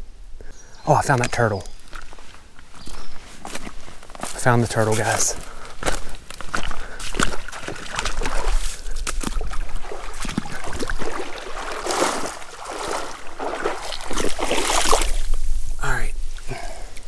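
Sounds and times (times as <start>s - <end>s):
water sloshing and splashing: 5.9s - 15.7s.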